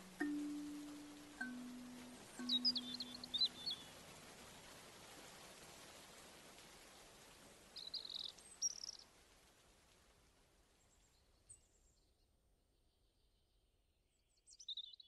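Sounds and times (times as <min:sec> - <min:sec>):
bird chirps: 0:00.0 - 0:03.9
rain hiss: 0:00.0 - 0:11.5.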